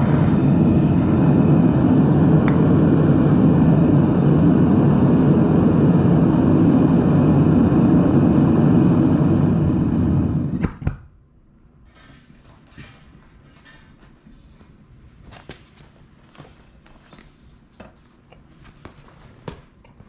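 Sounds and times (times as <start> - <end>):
propane burner rushing: 0.0 - 10.8.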